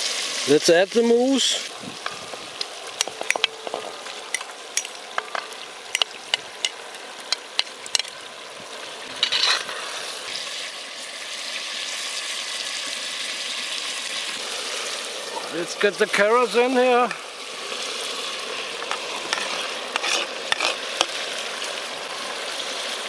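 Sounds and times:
meat frying in hot oil: 0:00.0 - 0:23.0
spatula stirring in pot: 0:18.8 - 0:21.2.

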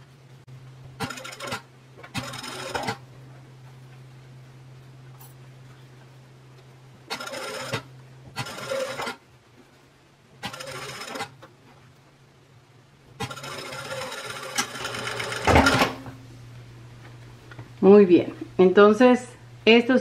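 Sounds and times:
steady low hum: 0:00.0 - 0:20.0
sewing machine stitching: 0:01.0 - 0:03.0, 0:07.1 - 0:09.2, 0:10.4 - 0:11.4, 0:13.2 - 0:16.0
sewing machine stopping thump: 0:14.6 - 0:16.0.

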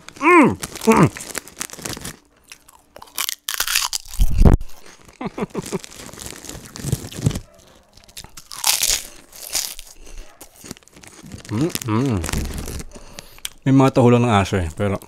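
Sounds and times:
crunching and chewing crispy snack: 0:00.0 - 0:13.6.

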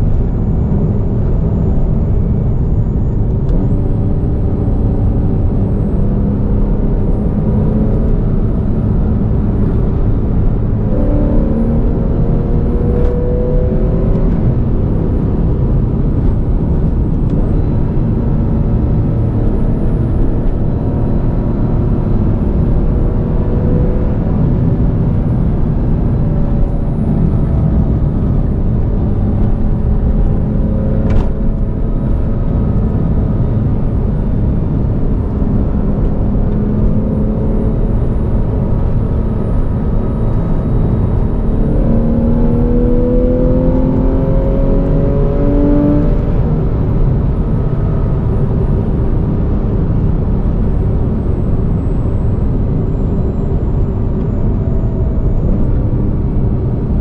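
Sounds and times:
car engine running: 0:00.0 - 0:57.0
wind and road noise: 0:00.0 - 0:57.0.

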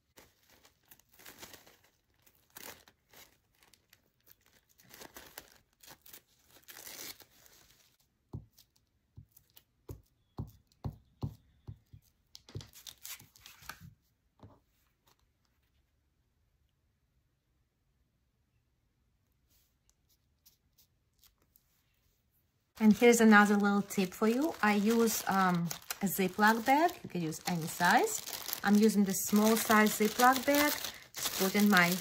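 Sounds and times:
paper crinkling and rustling: 0:00.0 - 0:09.7, 0:12.4 - 0:14.0, 0:22.8 - 0:32.0
glue stick knocking on paper: 0:09.2 - 0:12.7.

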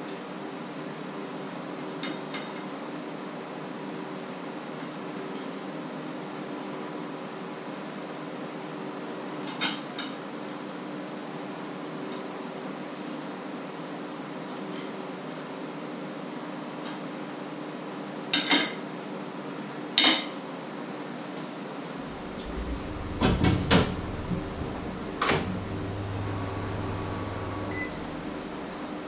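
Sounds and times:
low hum: 0:21.8 - 0:29.0.

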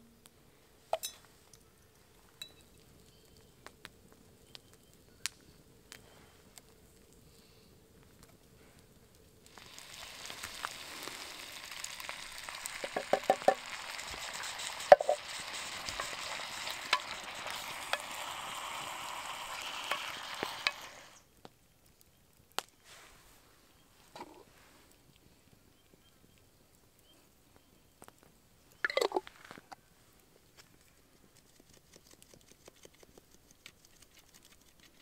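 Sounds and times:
meat sizzling in a pot: 0:09.4 - 0:21.3
wooden spoon knocking pot: 0:12.8 - 0:13.6.

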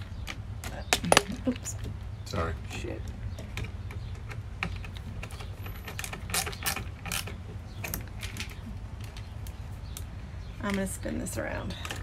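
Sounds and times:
hand tools clicking and tapping: 0:03.0 - 0:11.0.

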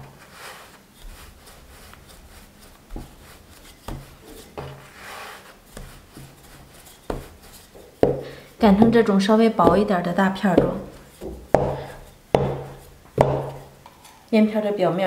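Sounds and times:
dough scraping on board: 0:00.0 - 0:13.8
rolling pin rubbing dough: 0:00.0 - 0:13.8
wood knocking on wood: 0:08.0 - 0:13.7.

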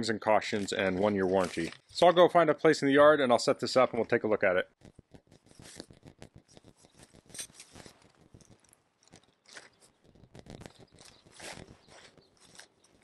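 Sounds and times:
small clicks: 0:04.8 - 0:13.0
rustling tent fabric: 0:05.5 - 0:08.3, 0:09.4 - 0:12.8.

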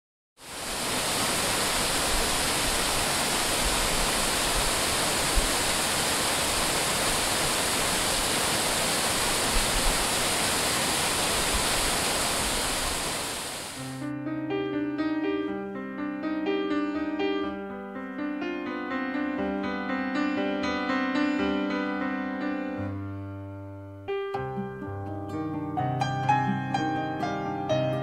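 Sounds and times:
waterfall pouring: 0:00.4 - 0:14.0.

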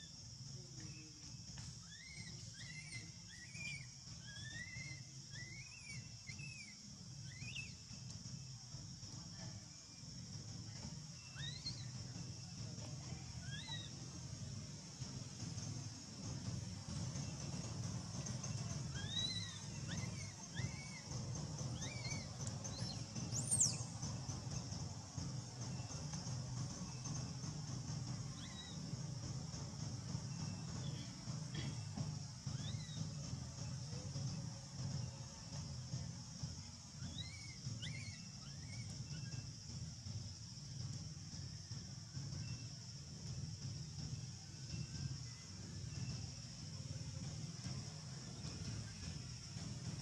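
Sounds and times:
baby monkey coo calls: 0:01.8 - 0:07.6, 0:11.3 - 0:11.9, 0:13.4 - 0:13.9, 0:18.9 - 0:21.2, 0:21.8 - 0:23.9, 0:28.4 - 0:28.8, 0:32.6 - 0:33.0, 0:37.0 - 0:39.4
baby monkey cooing: 0:37.1 - 0:39.3.

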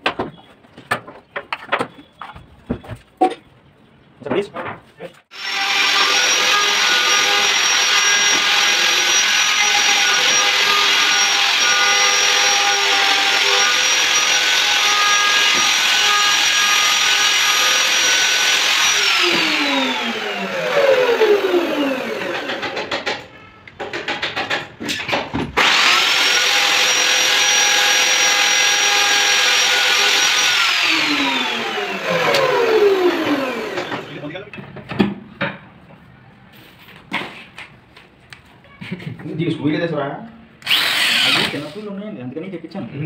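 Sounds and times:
electric router whining: 0:05.3 - 0:22.9, 0:25.6 - 0:34.4, 0:40.6 - 0:41.6.

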